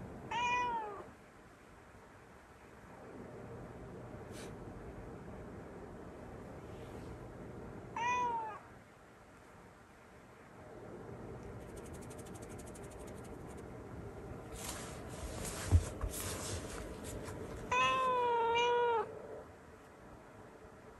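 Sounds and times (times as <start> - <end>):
cat meowing: 0.3 - 1.1, 8.0 - 8.7, 17.7 - 19.1
rustling handling noises: 14.5 - 18.1.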